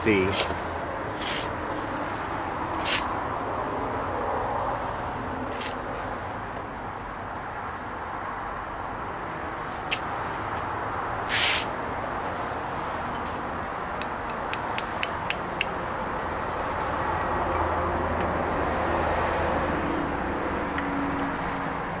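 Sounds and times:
burst of hiss: 11.3s - 11.7s.

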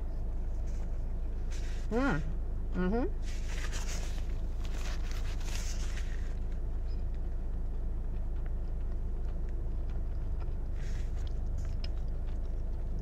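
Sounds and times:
paper napkin rustling: 3.2s - 6.4s
faint chewing: 3.2s - 13.0s.

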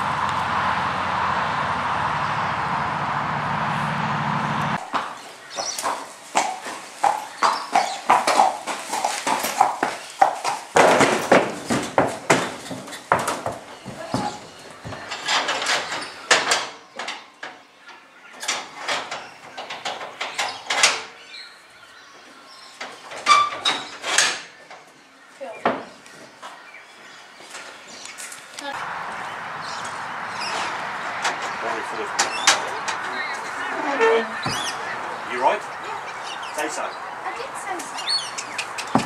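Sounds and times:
hooves clip-clopping on concrete: 4.8s - 17.2s, 24.8s - 39.0s
horse hooves thudding on ramp: 4.8s - 17.2s, 29.1s - 35.0s, 37.7s - 39.0s.

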